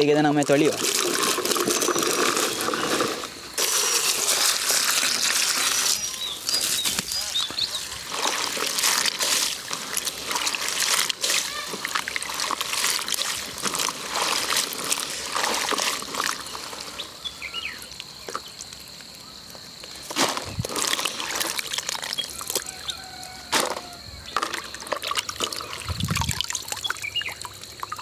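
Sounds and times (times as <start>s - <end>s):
water splashing: 0.0s - 17.3s, 20.1s - 28.0s
water trickling and pouring: 0.3s - 17.2s, 20.6s - 22.8s, 24.4s - 28.0s
hands swishing in water: 0.8s - 16.8s.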